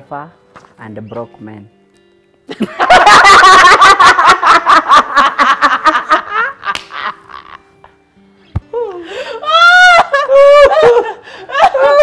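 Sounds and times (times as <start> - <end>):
man and woman laughing: 2.5 - 7.7, 9.4 - 12.0.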